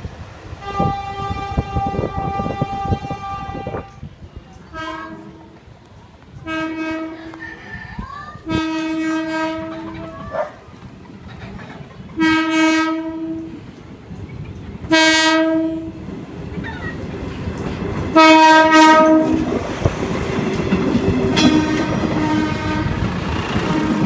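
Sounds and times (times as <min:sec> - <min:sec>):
train engine and wheels rumbling: 0:00.0 - 0:24.0
train horn blasts: 0:00.6 - 0:04.1, 0:04.7 - 0:05.6, 0:06.4 - 0:07.4, 0:08.5 - 0:10.2, 0:12.2 - 0:13.6, 0:14.9 - 0:16.0, 0:18.2 - 0:19.6, 0:21.3 - 0:24.0.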